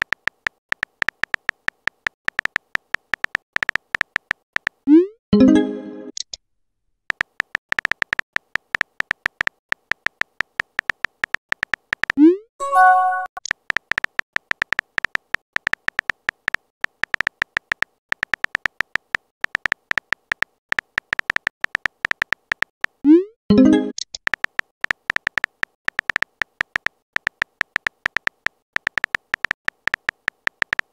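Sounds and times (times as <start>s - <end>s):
phone keyboard typing clicks: 0.0s - 4.8s, 7.1s - 12.2s, 12.8s - 23.0s, 23.6s - 30.9s
message sent pop and chime: 5.4s - 6.1s, 12.6s - 13.4s, 23.5s - 24.0s.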